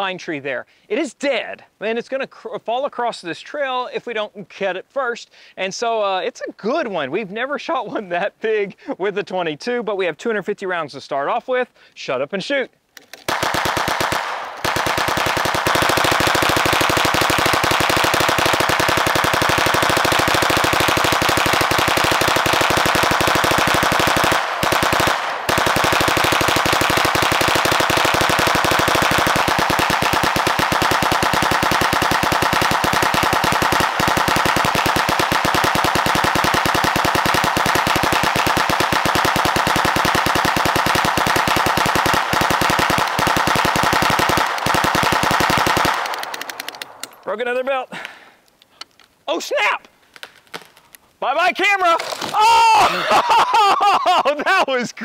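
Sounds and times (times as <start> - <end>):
gatling gun rapid shots: 13.3 - 47.1.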